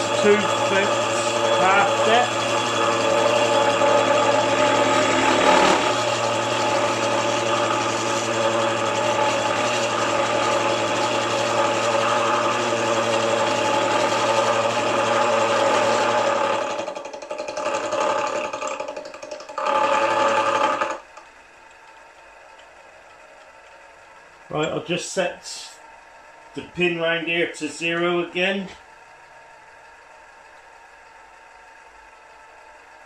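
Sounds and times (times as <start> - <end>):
gear cutter cutting metal: 0.0 - 21.1
milling machine hum: 0.0 - 33.0.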